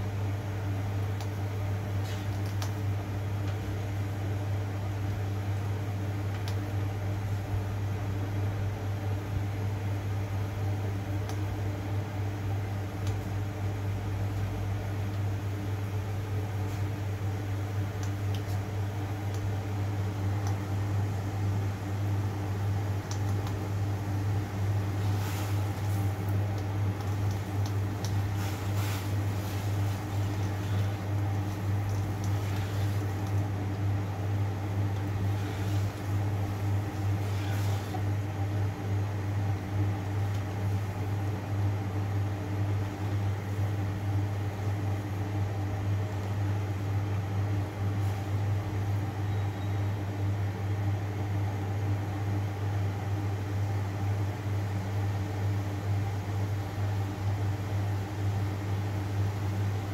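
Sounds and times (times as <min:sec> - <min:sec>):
mechanical hum: 0:00.0 - 0:59.9
water boiling in wok: 0:12.6 - 0:47.6.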